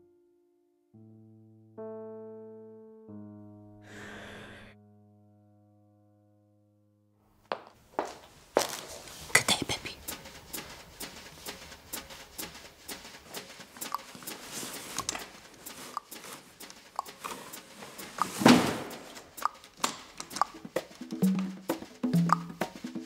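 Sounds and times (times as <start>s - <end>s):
clicking steps on hard floor: 7.5s - 9.3s, 10.0s - 23.0s
door clatter: 10.0s - 20.4s.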